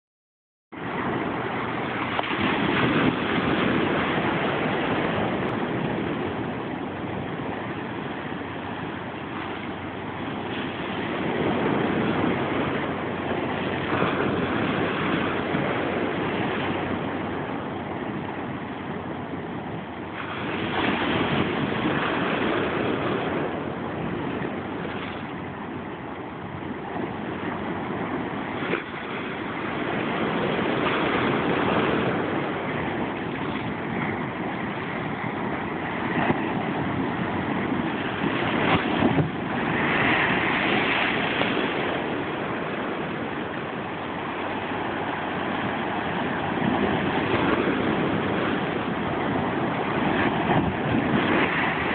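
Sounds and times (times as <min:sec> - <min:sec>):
ocean surf breaking on rocks: 0:00.8 - 0:51.9.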